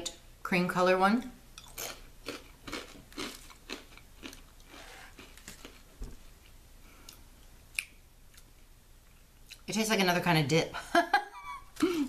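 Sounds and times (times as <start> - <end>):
person chewing crisp cracker: 1.6 - 5.9.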